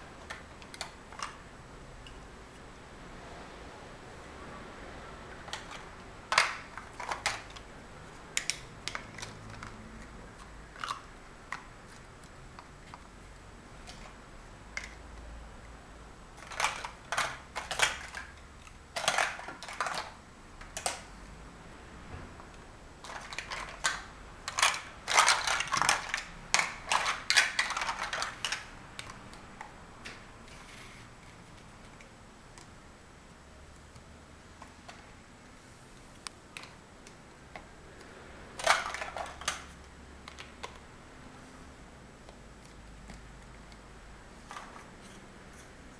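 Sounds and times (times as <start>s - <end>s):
plastic blocks clicking and clacking: 0.2s - 2.2s, 5.4s - 7.7s, 8.3s - 13.2s, 13.8s - 15.3s, 16.3s - 21.1s, 23.0s - 32.7s, 36.5s - 40.9s, 42.2s - 45.7s.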